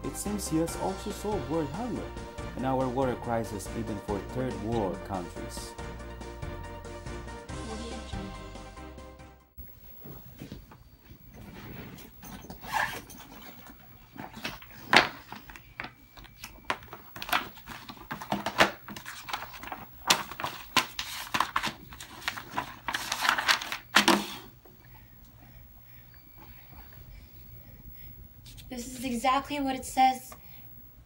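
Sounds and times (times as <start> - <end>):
paper crinkling and rustling: 12.6 - 24.5.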